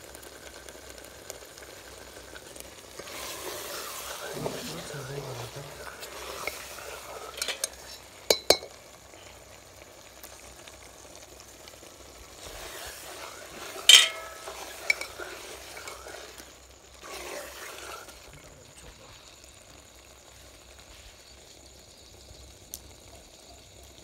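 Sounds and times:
ladle scraping in metal pot: 3.0 - 8.7, 12.4 - 18.3
ladle knocking against pot: 7.4 - 8.8, 13.9 - 15.1.

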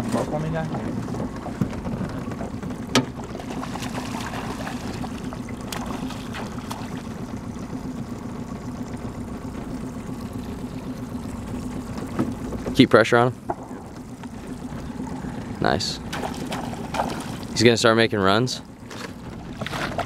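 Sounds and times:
small boat motor humming: 0.0 - 20.0
fish splashing at surface: 3.4 - 7.2, 16.0 - 17.6.

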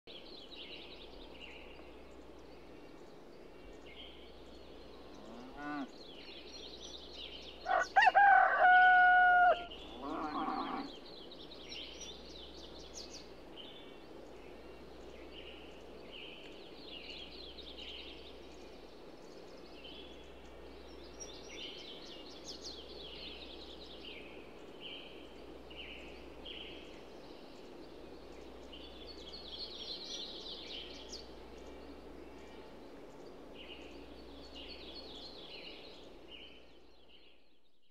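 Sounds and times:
low background noise: 0.1 - 37.9
small birds chirping: 0.1 - 37.9
rooster crowing: 7.6 - 10.9.

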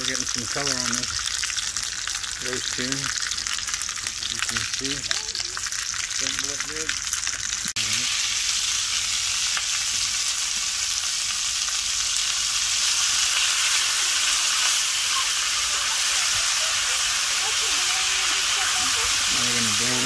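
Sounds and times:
vegetables sizzling in a skillet: 0.0 - 20.0.

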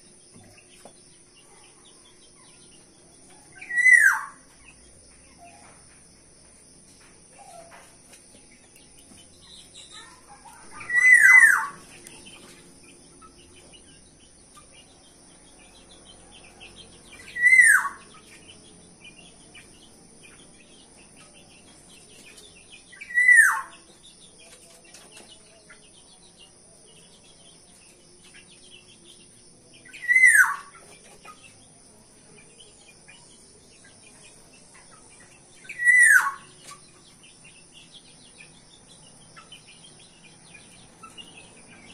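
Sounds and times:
bird whistling calls: 3.6 - 4.4, 10.6 - 11.8, 17.2 - 18.0, 23.0 - 23.8, 29.9 - 30.7, 35.7 - 36.5.

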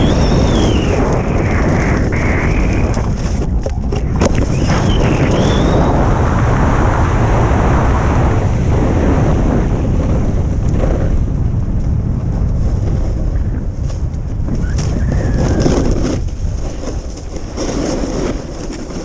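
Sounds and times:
snowboard scraping over snow: 0.0 - 19.0
wind buffeting microphone: 0.0 - 19.0.

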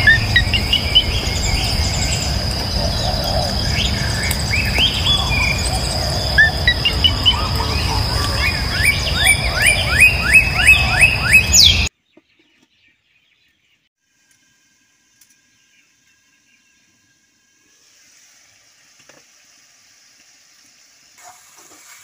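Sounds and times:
high insect trill: 0.0 - 11.8
birds chirping: 0.0 - 13.9.

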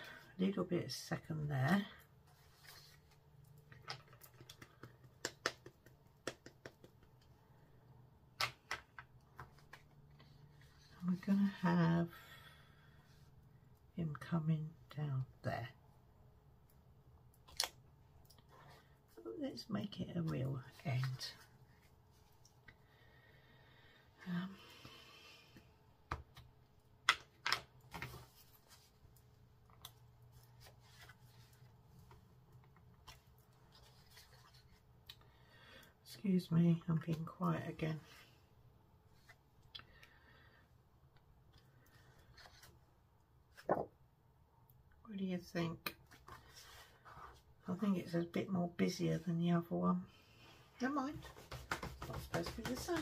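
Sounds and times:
acrylic stamps and paper handled: 2.3 - 7.3, 50.9 - 53.0.

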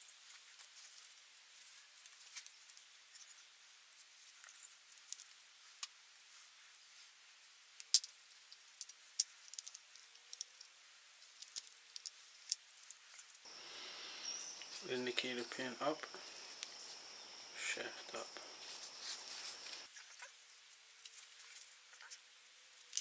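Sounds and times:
small metal parts clicking: 7.8 - 13.3.

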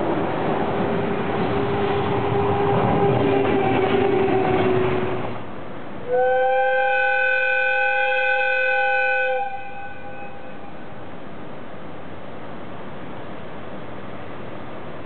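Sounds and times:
train rushing past: 0.0 - 15.0
locomotive whistle blast: 6.1 - 10.8.

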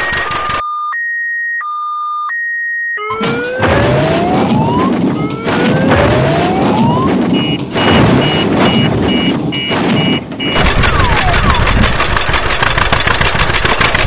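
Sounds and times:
reversing beeper: 0.0 - 11.8
truck engine whining: 3.0 - 14.0.

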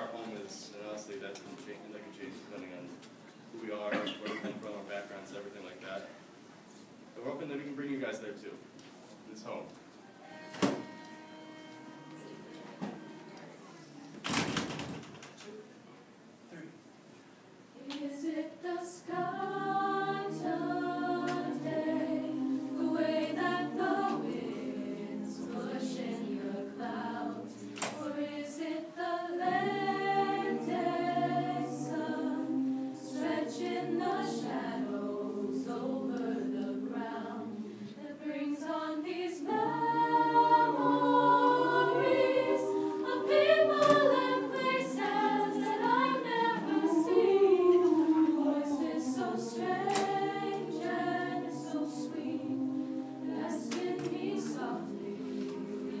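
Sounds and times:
mixed choir singing a cappella: 17.7 - 56.0.

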